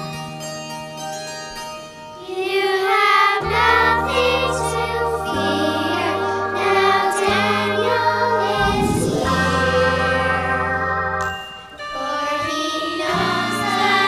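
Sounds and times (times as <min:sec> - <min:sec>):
children singing: 0:02.2 - 0:14.0
instrumental accompaniment: 0:03.4 - 0:14.0.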